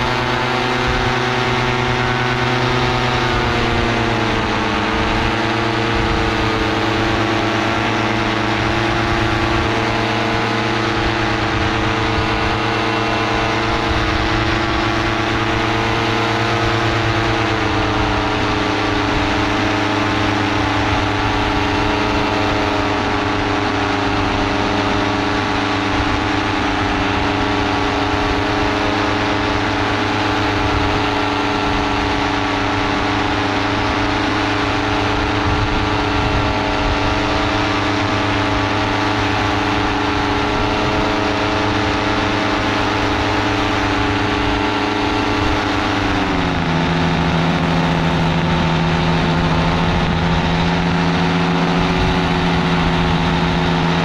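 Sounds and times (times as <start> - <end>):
paramotor engine and propeller: 0.0 - 54.0.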